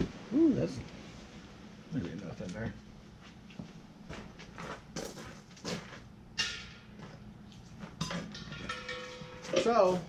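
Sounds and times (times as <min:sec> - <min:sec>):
footsteps on gravel: 0:03.1 - 0:06.1.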